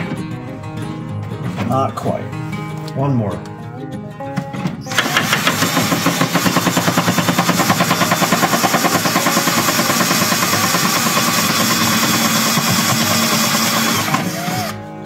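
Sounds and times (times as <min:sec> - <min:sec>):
cordless drill boring into plastic: 0:04.9 - 0:14.8.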